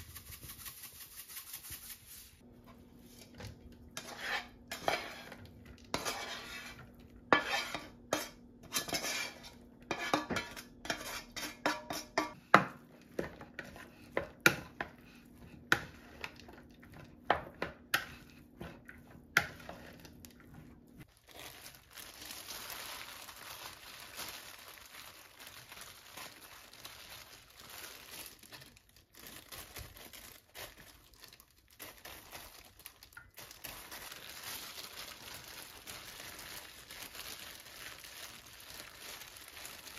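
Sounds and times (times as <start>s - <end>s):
plastic gloves crinkling: 0.0s - 12.2s, 19.2s - 39.9s
spatula scraping frying pan: 3.0s - 21.1s.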